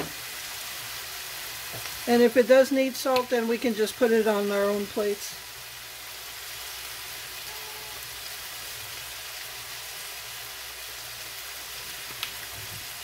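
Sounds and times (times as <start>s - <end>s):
meat sizzling in a frying pan: 0.0s - 13.0s.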